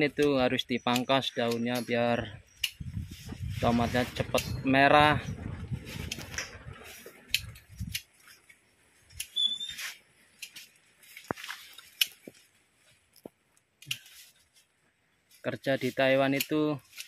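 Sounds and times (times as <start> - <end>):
rustling foliage: 0.0 - 17.0
leaf stems snapping: 5.9 - 12.5, 13.2 - 14.5, 16.0 - 17.0
short high squeak: 9.3 - 10.0.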